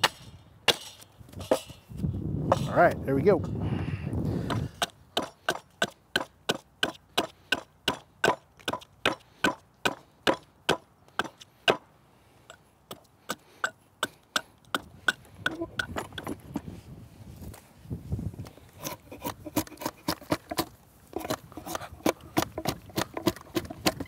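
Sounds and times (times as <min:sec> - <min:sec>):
hatchet chopping wood: 0:00.0 - 0:01.7, 0:04.5 - 0:11.9, 0:12.9 - 0:16.4, 0:18.8 - 0:24.0.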